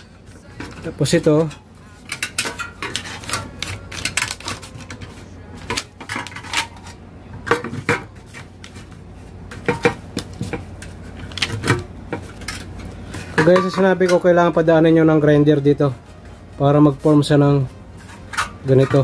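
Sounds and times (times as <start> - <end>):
thin sheet crinkling and clicking: 2.2 - 6.8.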